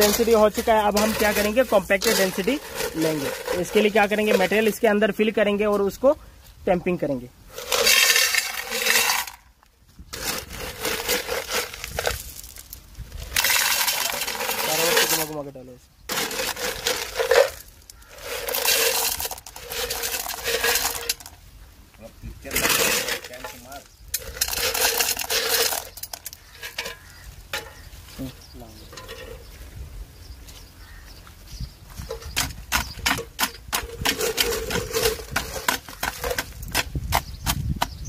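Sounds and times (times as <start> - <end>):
stones clattering against metal: 0.0 - 5.0, 7.5 - 9.5, 10.1 - 15.4, 16.1 - 21.4, 22.4 - 27.9, 28.8 - 29.5, 32.0 - 37.6.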